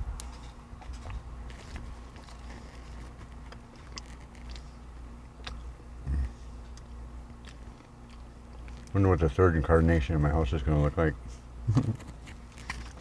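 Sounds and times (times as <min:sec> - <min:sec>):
low hum inside car: 0:00.0 - 0:13.0
chewing: 0:00.2 - 0:10.0.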